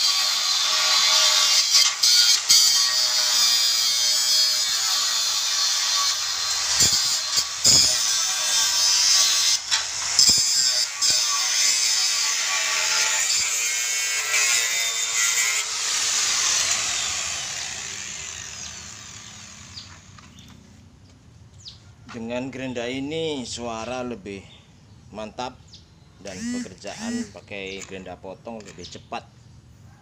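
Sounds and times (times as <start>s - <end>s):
angle grinder cutting steel: 0.0s - 20.4s, 26.3s - 27.8s.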